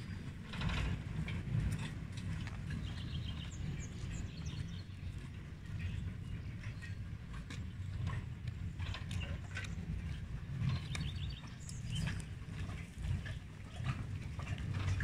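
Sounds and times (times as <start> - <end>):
light clanks: 0.0 - 15.0
rail carriage rumbling: 0.0 - 15.0
bird chirping: 2.8 - 5.2, 10.7 - 12.2.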